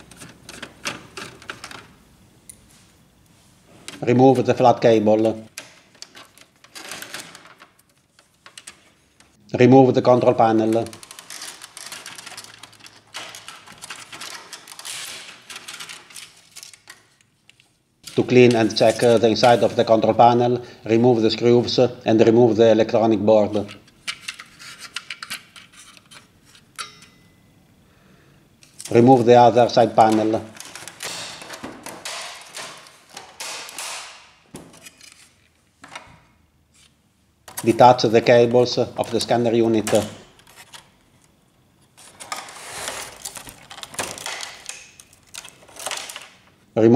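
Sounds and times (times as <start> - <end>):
plastic scraping: 10.5 - 17.1.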